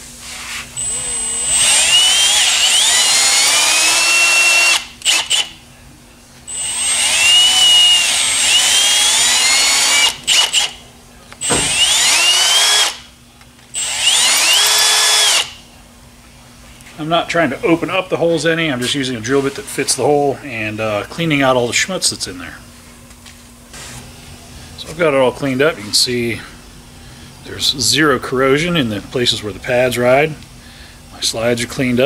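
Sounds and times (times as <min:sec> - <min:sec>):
cordless drill whining: 0:00.8 - 0:05.5, 0:06.5 - 0:10.7, 0:11.4 - 0:13.0, 0:13.8 - 0:15.6.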